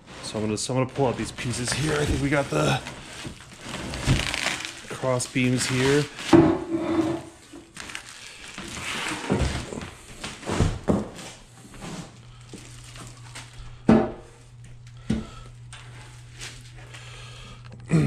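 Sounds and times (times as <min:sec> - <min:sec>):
plastic wrap rustling: 0:00.0 - 0:10.9, 0:11.7 - 0:13.8, 0:15.8 - 0:17.0
faint steady hum: 0:00.1 - 0:18.0.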